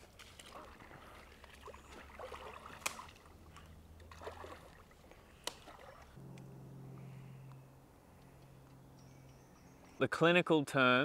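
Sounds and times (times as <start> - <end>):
water sloshing as someone wades: 0.0 - 6.2
low steady hum: 0.5 - 10.0.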